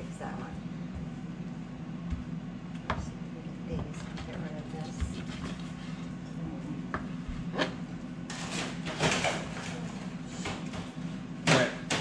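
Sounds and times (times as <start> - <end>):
steady low hum: 0.0 - 12.0
dishes clattering and rustling: 7.4 - 12.0.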